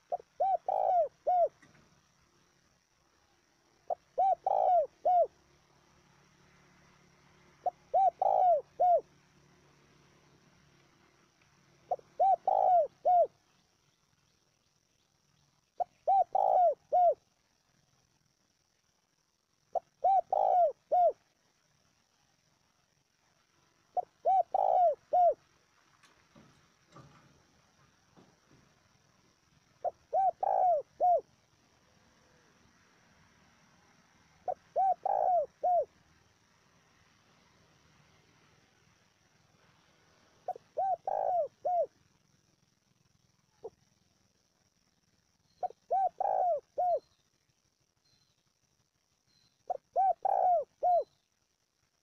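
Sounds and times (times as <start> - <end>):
dove cooing: 0.0 - 1.8, 3.8 - 5.4, 7.5 - 9.2, 11.8 - 13.4, 15.8 - 17.3, 19.7 - 21.2, 23.9 - 25.5, 29.8 - 31.3, 34.4 - 36.0, 40.4 - 42.0, 45.6 - 47.0, 49.7 - 51.2.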